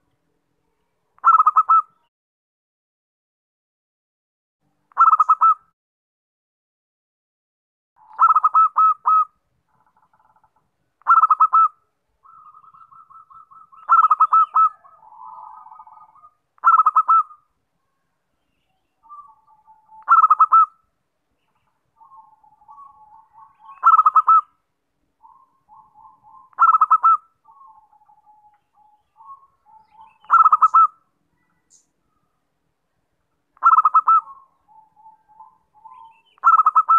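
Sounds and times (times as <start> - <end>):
dove cooing: 1.2 - 2.0, 5.0 - 5.6, 8.0 - 9.3, 11.0 - 17.4, 19.0 - 20.8, 22.0 - 24.5, 25.2 - 31.0, 33.6 - 36.9.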